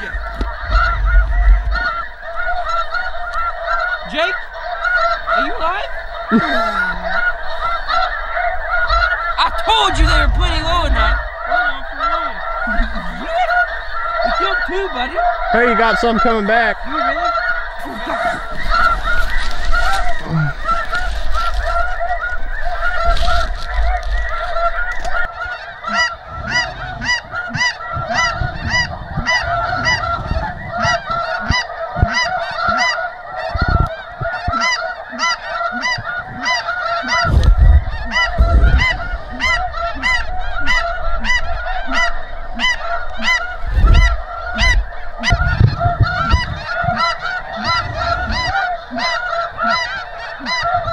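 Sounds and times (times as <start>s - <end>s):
low thuds: 0.0s - 2.9s, 37.2s - 41.6s, 43.5s - 48.7s
snow geese honking: 0.0s - 50.9s.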